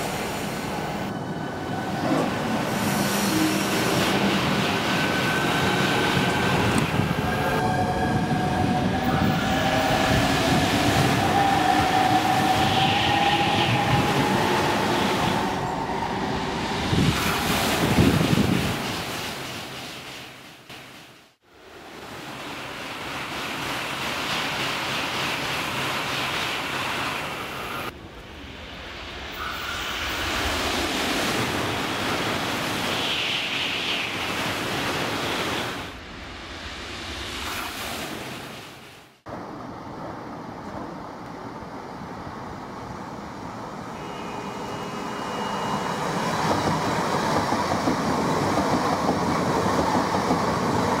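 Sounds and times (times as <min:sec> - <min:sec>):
passing train rushing: 0:00.0 - 0:20.4, 0:21.6 - 0:38.5, 0:39.3 - 0:51.0
electric train whine: 0:00.7 - 0:17.3, 0:41.9 - 0:51.0.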